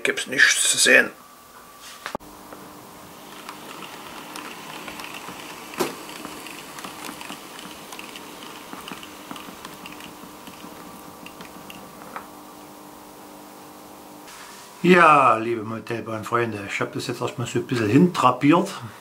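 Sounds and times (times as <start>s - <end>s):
model train running on track: 3.0s - 10.8s
wheels clicking over rail joints: 3.2s - 11.9s.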